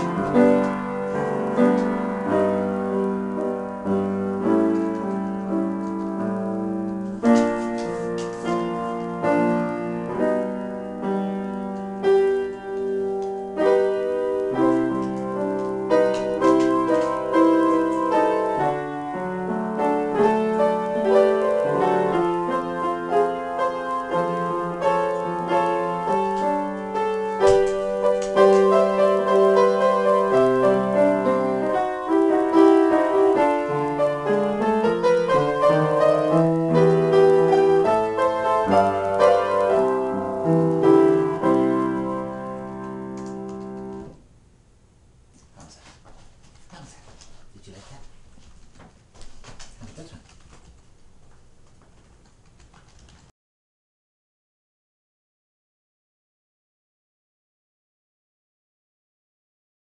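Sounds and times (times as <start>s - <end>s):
solo piano chords and melody: 0.0s - 44.4s.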